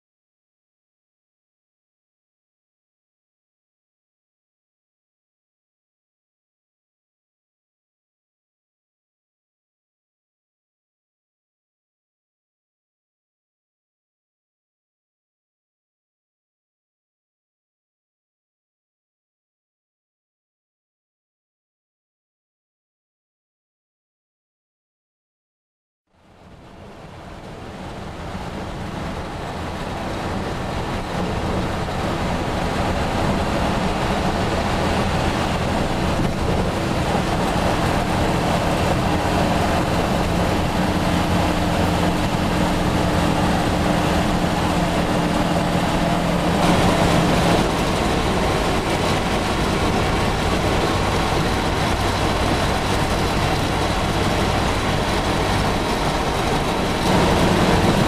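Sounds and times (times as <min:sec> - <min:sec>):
road noise: 0:26.1 - 0:58.0
truck engine running: 0:26.2 - 0:58.0
wind noise: 0:26.4 - 0:58.0.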